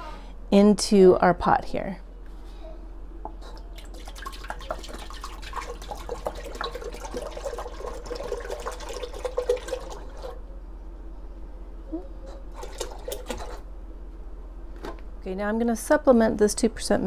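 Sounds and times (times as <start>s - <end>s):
milk pouring into metal pot: 3.7s - 10.4s, 12.5s - 13.6s.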